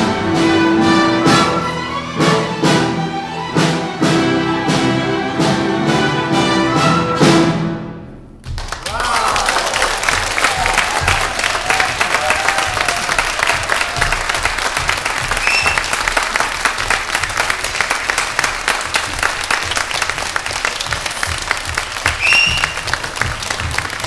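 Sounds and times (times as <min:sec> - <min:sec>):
audience applauding: 0:08.5 - 0:24.0
high-pitched calls from crowd: 0:15.3 - 0:16.1, 0:22.1 - 0:23.0.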